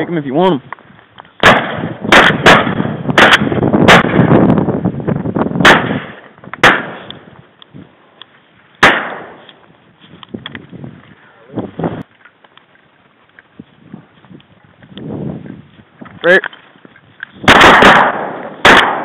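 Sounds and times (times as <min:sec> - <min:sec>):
shotgun shots: 0:01.4 - 0:04.4, 0:05.6 - 0:07.1, 0:08.8 - 0:09.4, 0:17.4 - 0:19.0
rolling echo: 0:17.4 - 0:19.0.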